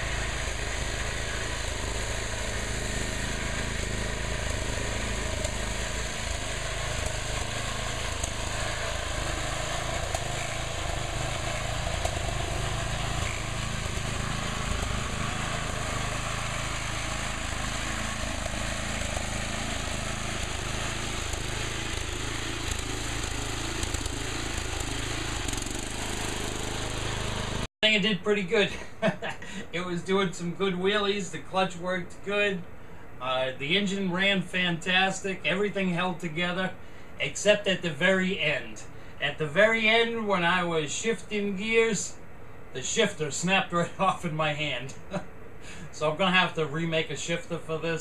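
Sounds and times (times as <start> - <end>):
tractor engine running: 0.0 - 31.6.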